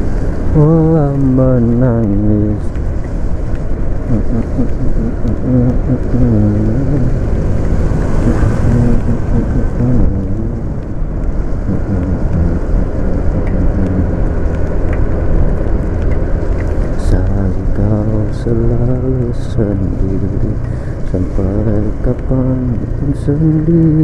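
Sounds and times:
scooter on wet road: 0.0s - 24.0s
wind rumble on microphone: 0.0s - 24.0s
pop song with singing: 0.5s - 2.8s, 4.1s - 7.4s, 8.1s - 11.0s, 11.7s - 14.7s, 16.9s - 24.0s.

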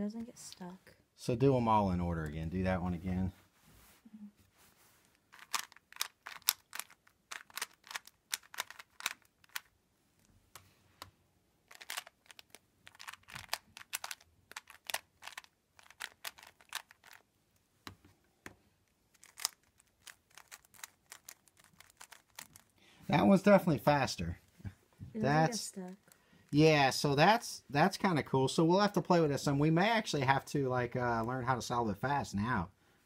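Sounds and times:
puzzle cube plastic clicks: 5.3s - 9.8s, 10.5s - 17.3s, 18.8s - 22.8s.

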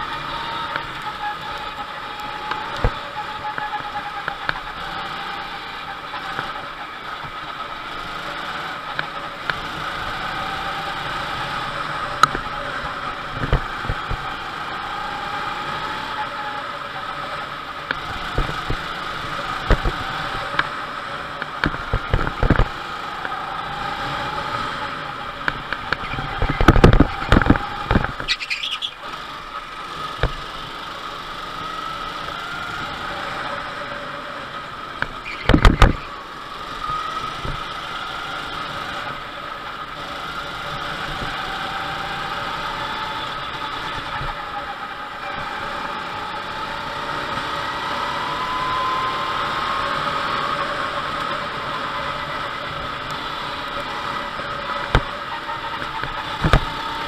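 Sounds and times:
go-kart engine under load: 0.0s - 57.0s
brief squeal: 35.2s - 36.1s.

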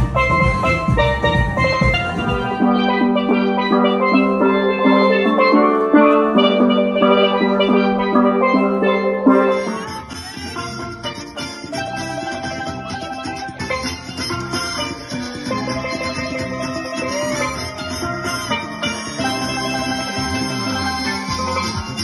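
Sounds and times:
drum beat: 0.0s - 9.9s
steel pan band playing: 0.0s - 22.0s.

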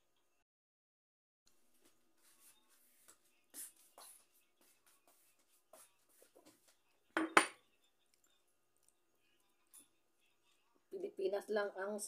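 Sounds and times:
crockery clinking: 7.2s - 7.6s
eating sounds: 8.0s - 10.0s.

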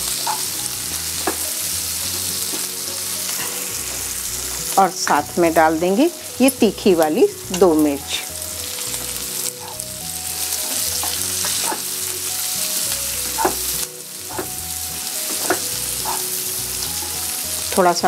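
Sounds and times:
food sizzling in oil: 0.0s - 18.0s
spatula scraping pan: 0.1s - 1.5s, 8.8s - 12.1s, 13.2s - 14.6s, 15.2s - 16.4s.

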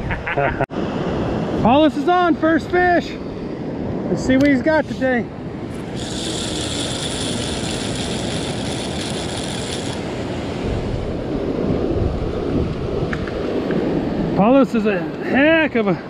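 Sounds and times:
wind on microphone: 0.0s - 1.8s, 3.2s - 14.5s
surf rushing: 0.7s - 16.0s
mechanical ratcheting whir: 5.7s - 10.6s.

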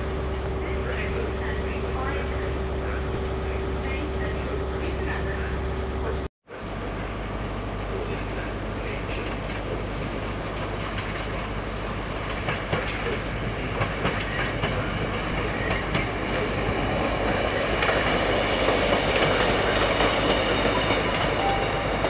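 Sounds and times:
diesel engine hum: 0.0s - 19.8s
train rumble: 0.0s - 22.0s
train wheels clicking over rail joints: 10.6s - 21.4s.

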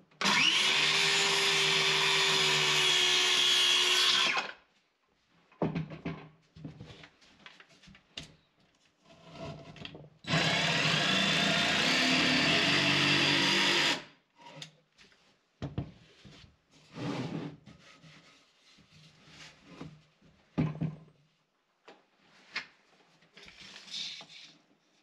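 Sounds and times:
circular saw cutting wood: 0.2s - 4.5s, 10.3s - 14.1s
jigsaw cutting wood: 0.2s - 4.6s, 10.3s - 14.1s
tools clunking and knocking: 5.6s - 6.8s.

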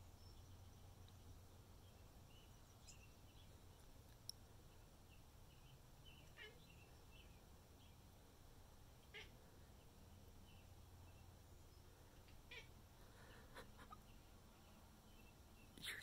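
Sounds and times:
faint birdsong from speakers: 0.0s - 16.0s
cat chirping: 6.2s - 6.6s, 12.5s - 12.7s, 13.5s - 14.0s.

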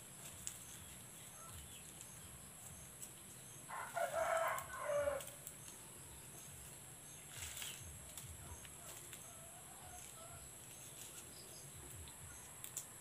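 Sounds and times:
rooster crowing: 3.7s - 5.4s.

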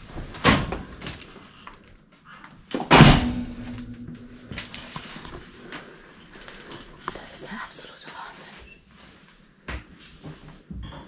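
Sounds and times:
loud bang with ringing tone: 2.9s - 5.1s.

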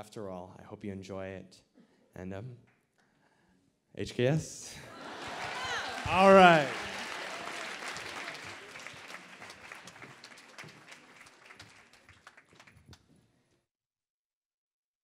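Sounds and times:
audience applause: 4.9s - 13.0s.

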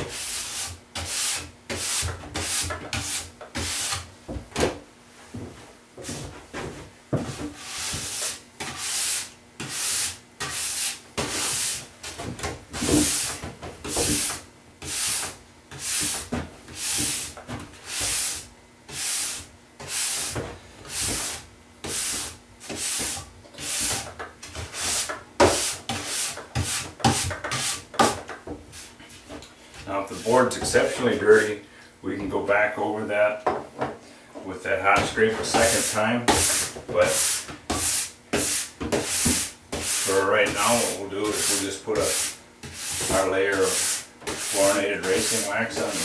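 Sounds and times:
steel brush on snowboard base: 7.6s - 11.8s, 16.8s - 20.3s, 35.5s - 46.0s.

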